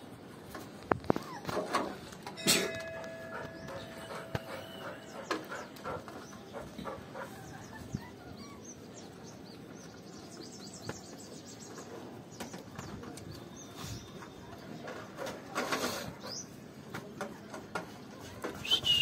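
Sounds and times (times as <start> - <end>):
small birds chirping: 3.3 - 15.1.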